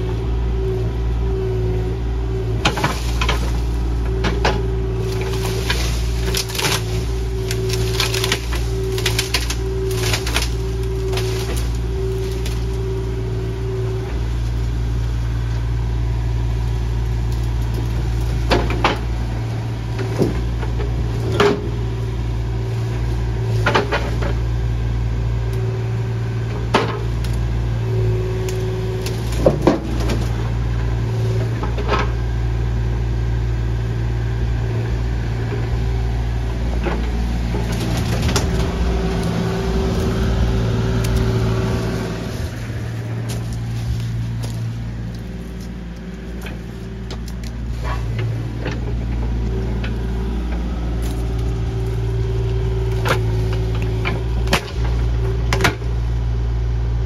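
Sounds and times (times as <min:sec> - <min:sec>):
excavator engine running: 0:00.0 - 0:57.0
sharp cracks and knocks: 0:02.6 - 0:12.8, 0:17.2 - 0:19.2, 0:23.4 - 0:24.4, 0:26.6 - 0:27.4, 0:28.4 - 0:30.4, 0:36.8 - 0:55.9.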